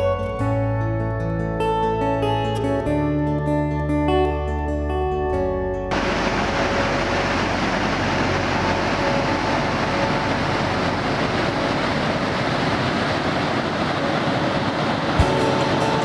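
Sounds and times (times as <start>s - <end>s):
river water rushing over a dam: 5.9s - 16.0s.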